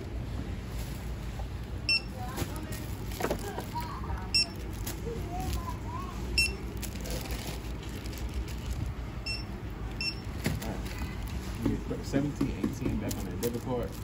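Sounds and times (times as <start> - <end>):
low store hum: 0.0 - 14.0
barcode scanner beeps: 1.9 - 2.2, 4.3 - 4.6, 6.4 - 6.6, 9.2 - 10.3.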